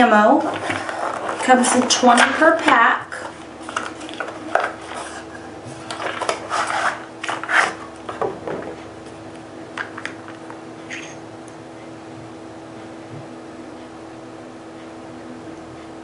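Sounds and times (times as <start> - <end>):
cardboard rubbing and scraping: 0.4 - 2.6, 3.2 - 7.9.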